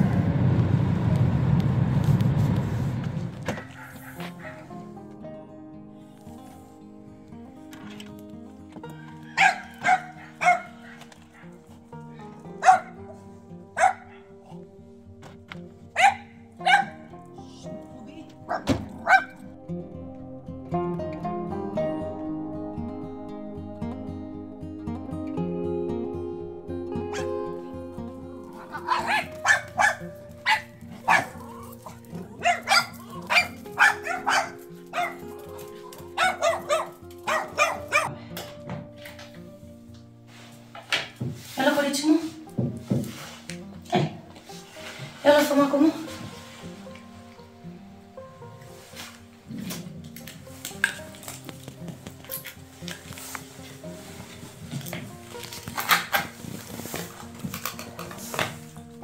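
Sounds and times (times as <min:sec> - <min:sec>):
background music: 0:00.0 - 0:59.0
dog barking: 0:03.5 - 0:04.8, 0:09.0 - 0:11.6, 0:12.5 - 0:13.2, 0:13.8 - 0:14.4, 0:16.0 - 0:17.1, 0:18.5 - 0:19.4, 0:27.1 - 0:27.4, 0:28.6 - 0:35.4, 0:36.1 - 0:38.2.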